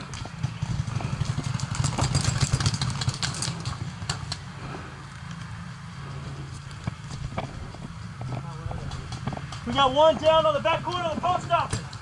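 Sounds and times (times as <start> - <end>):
steady low hum: 3.3 - 10.8.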